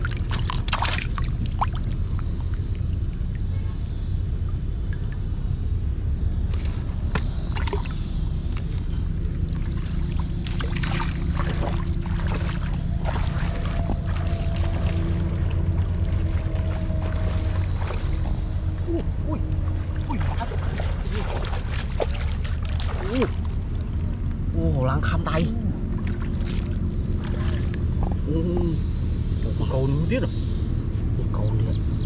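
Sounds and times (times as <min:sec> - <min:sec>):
water splashes: 0:00.0 - 0:05.2, 0:06.5 - 0:24.3, 0:25.0 - 0:28.0
shallow water sloshing: 0:00.0 - 0:05.3, 0:06.4 - 0:18.8, 0:19.4 - 0:24.5, 0:25.8 - 0:28.1
steady low rumble: 0:00.0 - 0:32.0.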